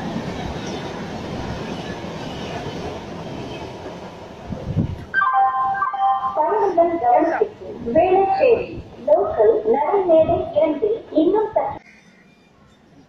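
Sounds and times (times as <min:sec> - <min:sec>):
tune playing: 0:05.2 - 0:06.7.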